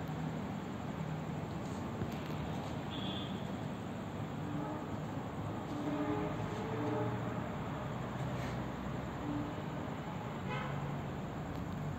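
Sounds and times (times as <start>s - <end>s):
train horn toot: 4.4s - 7.7s, 10.4s - 10.8s.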